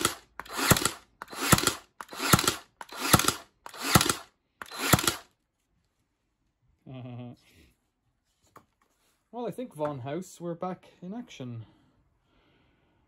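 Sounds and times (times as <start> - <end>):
nail gun firing into wood: 0.0 - 5.3.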